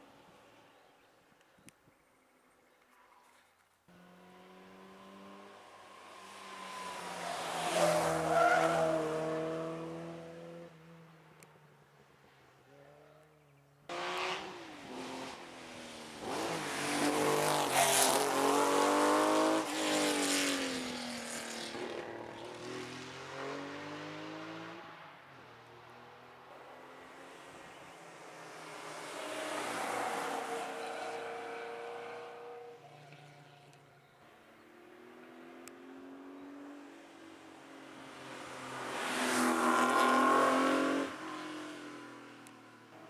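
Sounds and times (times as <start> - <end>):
rally car engines passing: 3.9 - 11.1, 12.8 - 43.0.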